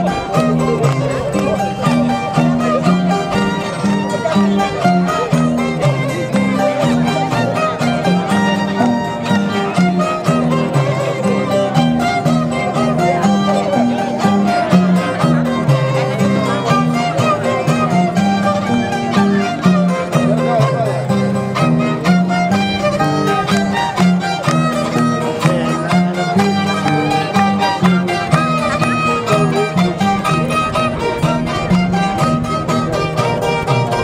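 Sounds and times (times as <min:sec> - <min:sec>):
harp music: 0:00.0 - 0:34.0.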